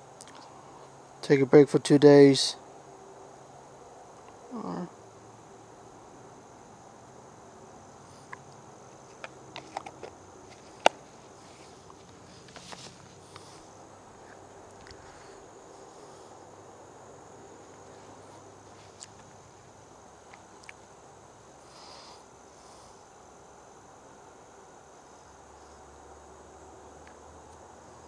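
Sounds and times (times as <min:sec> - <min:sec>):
crickets chirping: 0:00.0 - 0:28.0
short rustle: 0:10.4 - 0:14.4.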